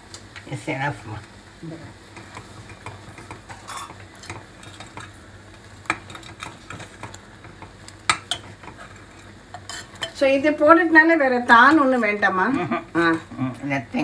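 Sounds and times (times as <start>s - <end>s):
metal spoon scraping a pot: 2.8s - 5.1s, 8.1s - 10.2s.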